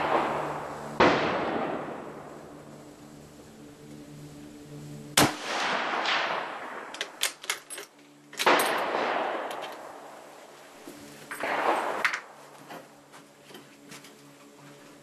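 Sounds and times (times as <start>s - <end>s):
rifle shot echoing: 0.0s - 2.4s, 5.2s - 7.4s, 8.4s - 10.2s, 11.3s - 12.4s
rifle bolt clicking: 6.9s - 8.6s.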